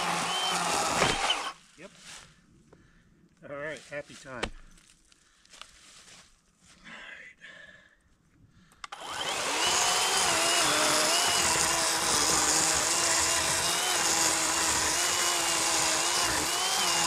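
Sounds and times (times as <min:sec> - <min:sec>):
electric chainsaw cutting log: 0:00.0 - 0:01.6, 0:08.9 - 0:17.0.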